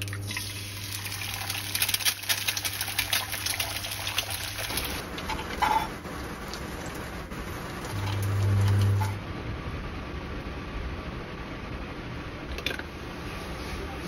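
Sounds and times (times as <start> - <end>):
egg sizzling in oil: 0.0 - 9.2
low hum: 5.0 - 14.0.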